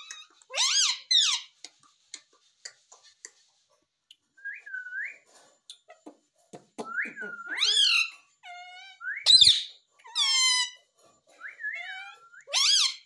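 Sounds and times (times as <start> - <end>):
parrot screeching: 0.0 - 1.5, 7.5 - 10.8, 11.6 - 13.0.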